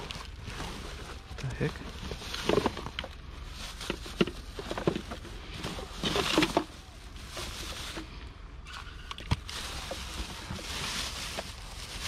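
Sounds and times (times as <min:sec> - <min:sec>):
rustling: 0:00.0 - 0:12.0
items knocking and clattering: 0:01.7 - 0:06.8.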